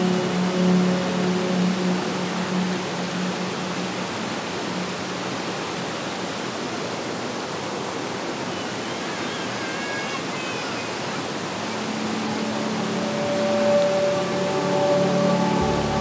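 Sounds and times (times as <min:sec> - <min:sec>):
faint high-pitched notes: 0:00.0 - 0:05.4, 0:11.2 - 0:16.0
stream water babbling over rocks: 0:00.0 - 0:16.0.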